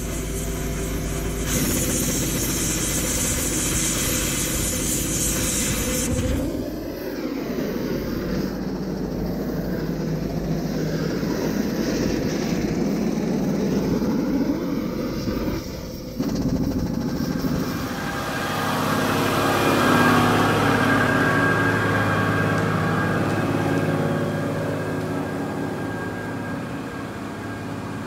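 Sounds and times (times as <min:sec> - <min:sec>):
diesel truck engine idling: 0:16.0 - 0:28.0.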